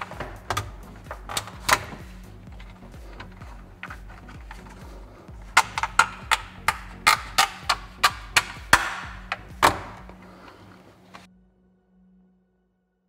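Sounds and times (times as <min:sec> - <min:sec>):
plastic parts snapping into place: 0:05.5 - 0:10.3.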